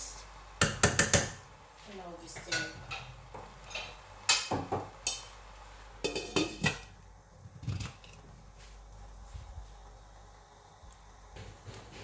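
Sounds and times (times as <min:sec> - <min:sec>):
pot lid clinking on metal pot: 0:06.0 - 0:06.9.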